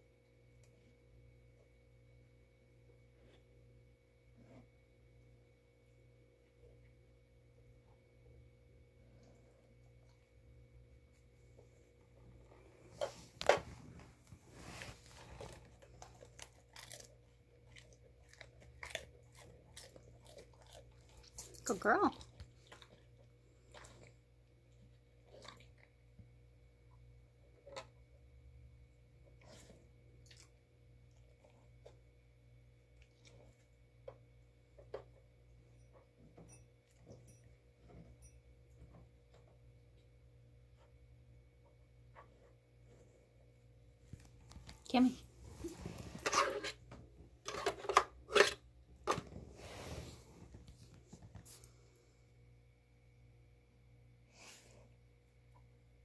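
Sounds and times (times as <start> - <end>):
dog chewing a treat: 15.2 - 26.0.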